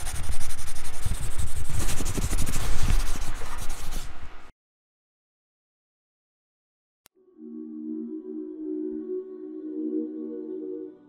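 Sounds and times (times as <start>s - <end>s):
scratchy rubbing noise: 0.0s - 4.2s.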